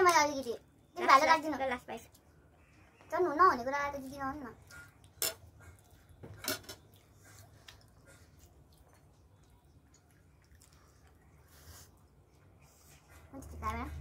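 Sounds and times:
faint chewing: 1.3s - 14.0s.

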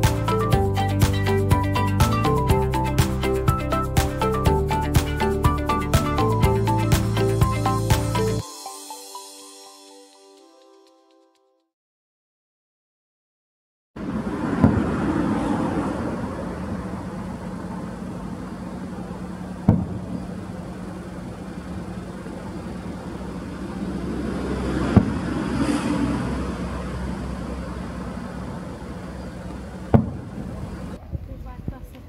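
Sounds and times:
low engine hum: 14.0s - 32.0s.

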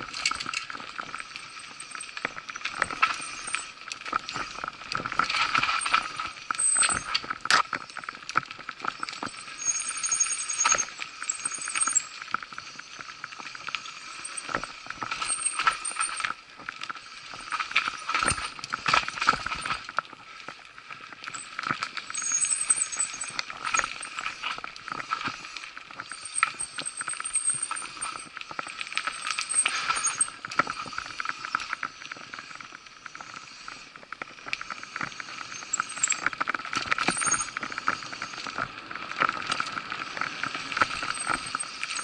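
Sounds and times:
high squeaks: 9.2s - 12.1s
mountain bike rattling on dirt: 21.2s - 31.6s, 35.4s - 42.0s.

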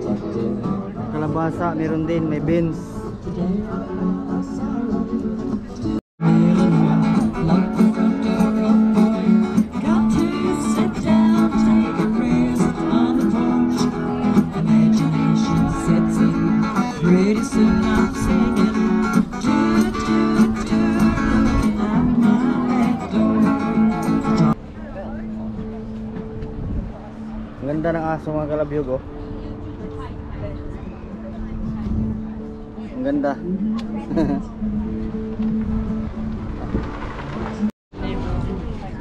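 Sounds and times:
strummed acoustic guitar: 0.0s - 24.6s
person singing: 2.8s - 24.6s.

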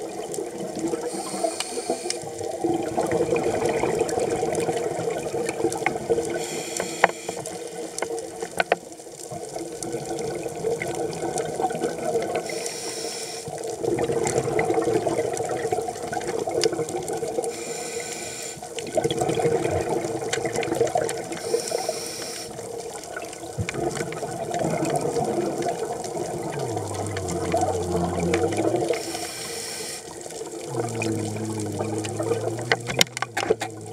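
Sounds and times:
rush of exhaled bubbles: 0.0s - 6.6s, 9.5s - 12.6s, 13.6s - 17.8s, 18.6s - 33.9s
steady underwater rush: 0.0s - 8.5s, 9.4s - 33.9s
regulator inhale hiss: 1.0s - 2.3s, 6.3s - 7.7s, 12.4s - 13.6s, 17.5s - 18.7s, 21.4s - 22.6s, 28.9s - 30.2s.

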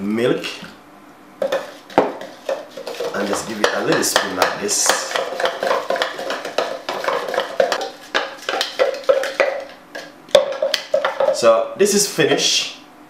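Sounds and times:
spoon knocking jug: 1.4s - 11.4s
spoon stirring in plastic jug: 1.4s - 11.5s.

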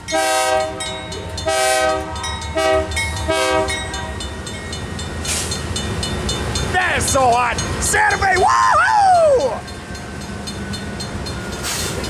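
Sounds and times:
diesel engines rumbling: 0.0s - 12.0s
locomotive air horn blasts: 0.1s - 4.2s.

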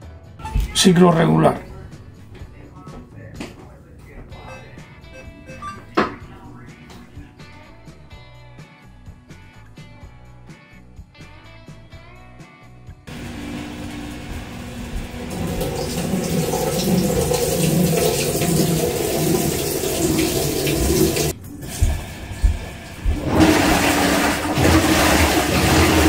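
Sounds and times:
water splashing into washer drum: 13.1s - 26.0s.

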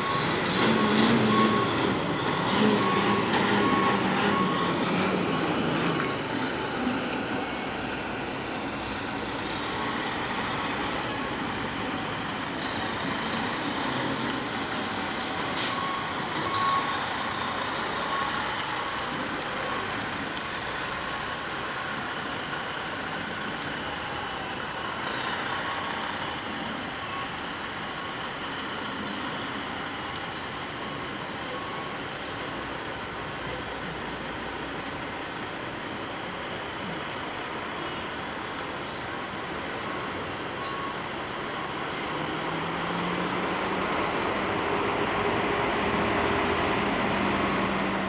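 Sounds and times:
reversing beeper: 0.0s - 11.0s, 12.6s - 20.0s, 39.7s - 46.1s
diesel truck engine running: 0.0s - 48.0s.

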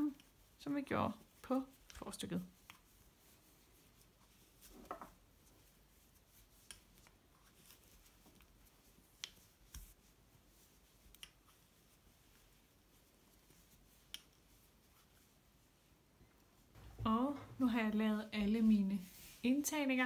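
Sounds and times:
knitting needles clicking: 1.4s - 2.9s, 6.6s - 10.0s, 11.0s - 11.6s, 14.0s - 14.4s.

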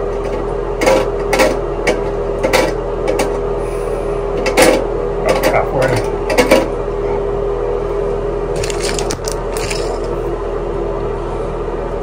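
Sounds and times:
steady hum: 0.0s - 12.0s
plastic parts clicking and scraping: 8.6s - 10.1s.

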